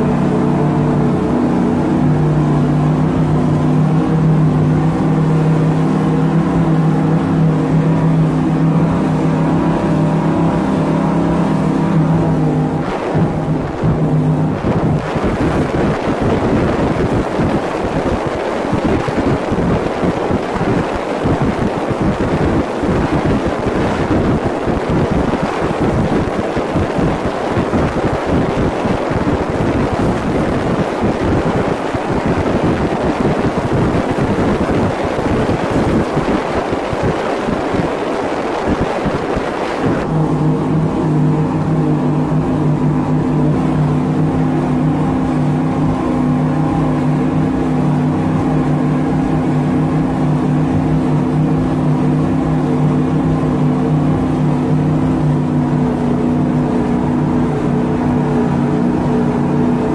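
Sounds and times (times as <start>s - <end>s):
engine running steadily: 0.0s - 59.9s
wind noise on microphone: 11.8s - 52.7s.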